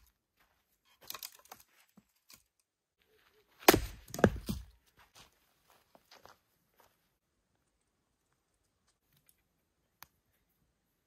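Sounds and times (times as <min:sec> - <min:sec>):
axe chopping wood: 0:03.6 - 0:04.7.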